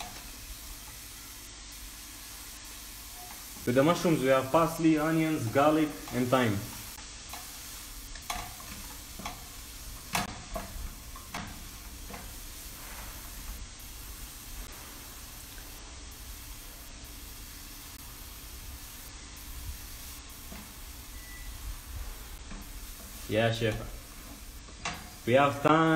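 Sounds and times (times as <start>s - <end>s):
vegetables sizzling in a frying pan: 0.0s - 25.9s
spatula scraping and tapping pan: 5.4s - 13.6s, 22.4s - 25.2s.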